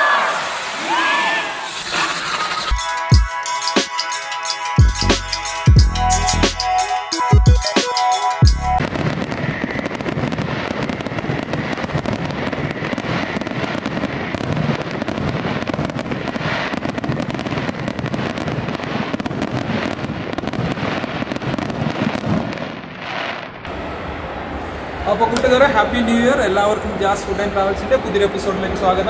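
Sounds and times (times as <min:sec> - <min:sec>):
fireworks crackling and banging: 0:00.0 - 0:05.4, 0:08.8 - 0:28.9
music with drums: 0:02.6 - 0:08.8.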